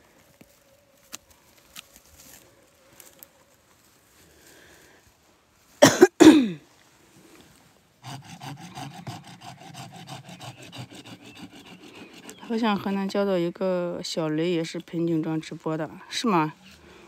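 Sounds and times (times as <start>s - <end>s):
man coughing: 5.8s - 6.6s
fast scraping on woody stump: 8.0s - 13.2s.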